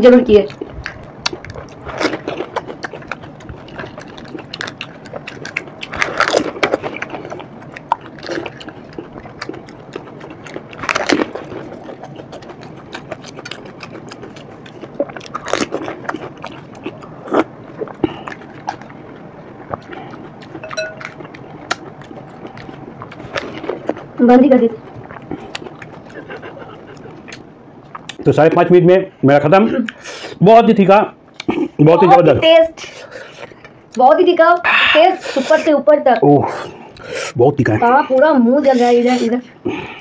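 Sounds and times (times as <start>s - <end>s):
crisp shells crunching while chewed: 0.4s - 24.2s, 24.8s - 28.2s.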